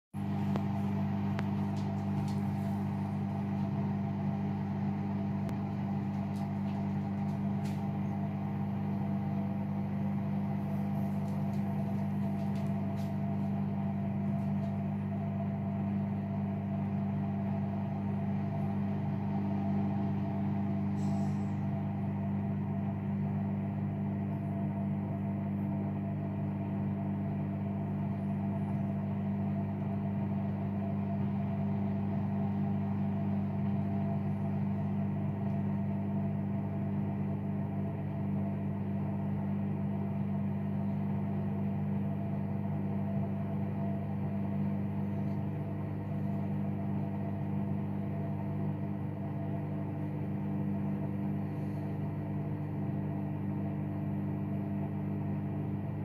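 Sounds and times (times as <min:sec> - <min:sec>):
washing machine humming: 0:00.1 - 0:56.0.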